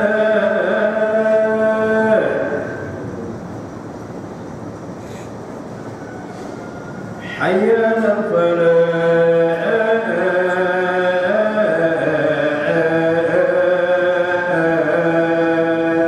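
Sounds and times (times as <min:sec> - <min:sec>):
man chanting: 0:00.0 - 0:03.4, 0:07.2 - 0:16.0.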